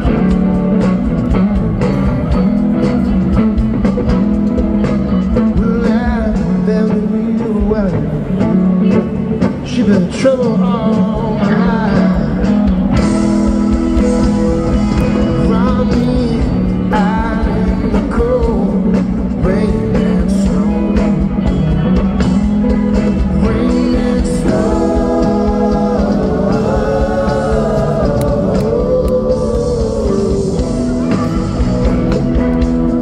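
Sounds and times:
electric guitar: 0.0 - 33.0
live rock band playing: 0.0 - 33.0
man singing: 5.4 - 12.8, 15.1 - 21.5, 23.2 - 31.2.

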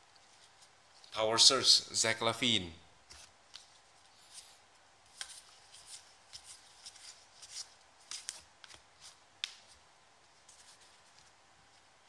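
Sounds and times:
cards flipped by hand: 3.1 - 9.8.

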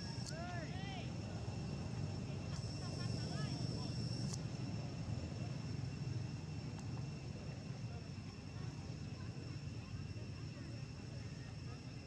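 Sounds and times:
faint click: 6.7 - 6.9.

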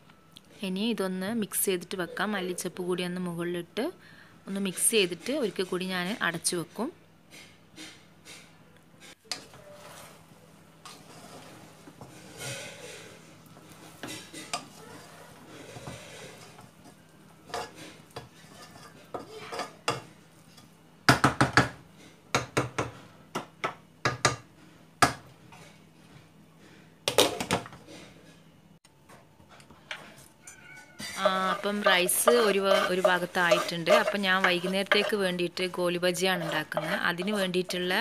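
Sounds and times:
spoon stirring and scraping rice: 7.3 - 19.8, 30.8 - 38.0.

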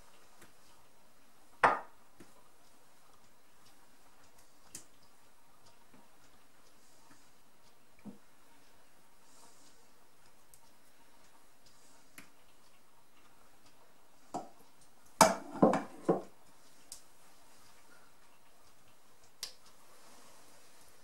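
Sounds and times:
glass knocking on wooden board: 1.6 - 1.9.

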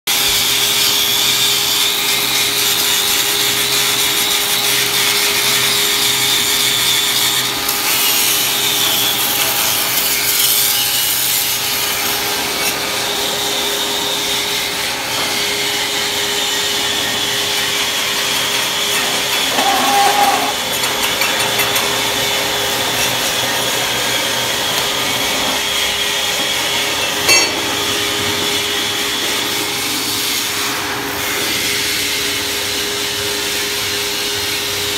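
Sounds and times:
angle grinder grinding steel: 14.5 - 28.6.

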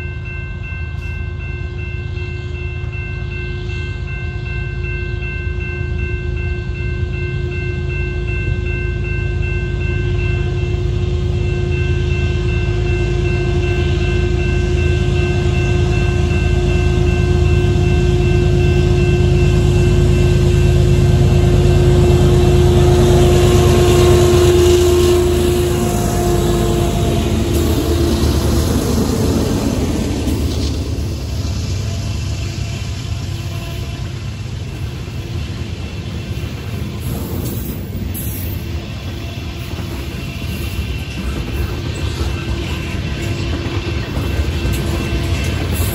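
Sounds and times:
diesel locomotives rumbling past: 0.0 - 45.9
steady high tones: 11.3 - 45.9.

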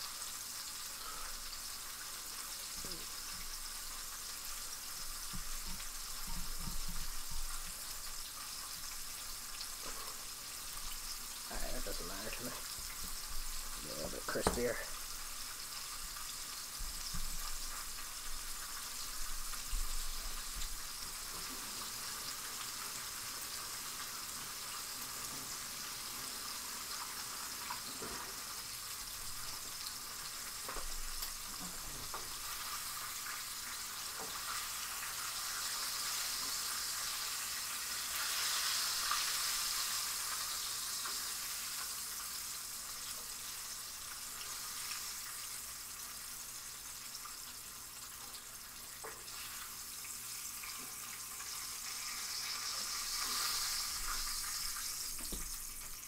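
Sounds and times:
chicken frying in oil: 0.0 - 56.0.

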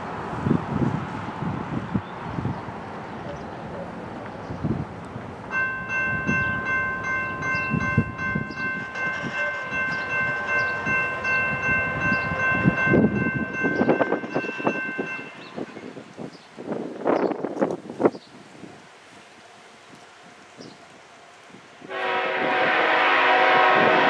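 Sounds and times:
locomotive air horn chord: 8.4 - 11.4, 21.9 - 24.0.

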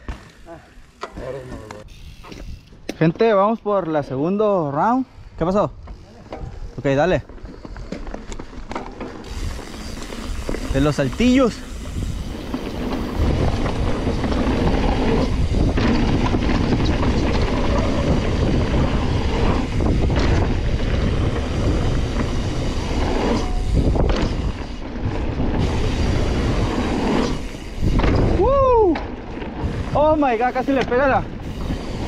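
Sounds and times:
rattling bike chain and frame: 0.0 - 32.0
tyres rushing on dirt: 6.8 - 32.0.

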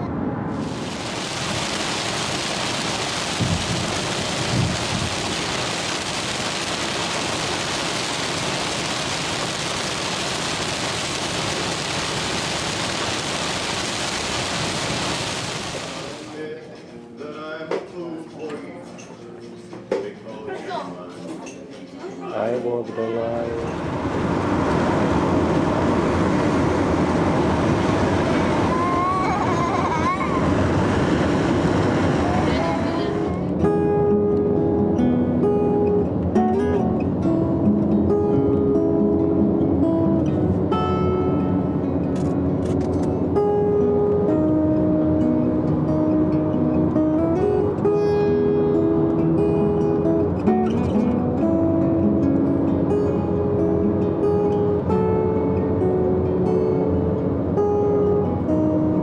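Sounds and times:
road noise: 0.0 - 16.4, 22.7 - 59.0
heavy rain on car: 0.6 - 16.3, 23.8 - 33.3.

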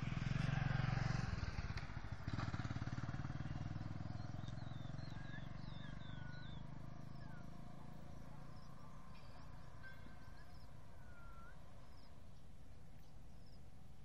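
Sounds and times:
birds whistling: 3.4 - 12.4
small high chirps: 4.0 - 13.7.

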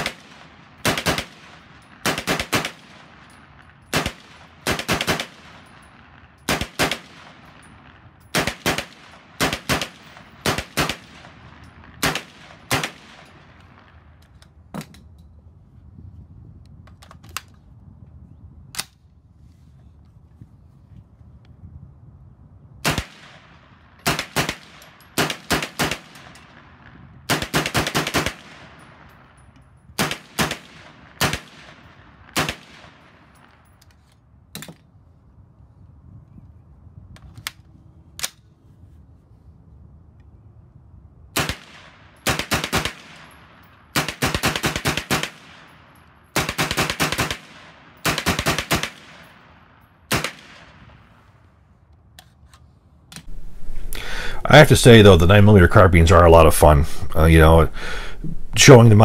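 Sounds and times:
carbine gunshots: 0.0 - 13.9, 22.8 - 29.3, 30.0 - 33.5, 41.4 - 50.9.

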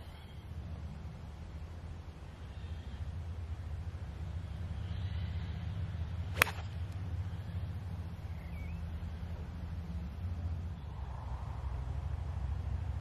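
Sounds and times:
golf club striking ball: 6.3 - 7.0.

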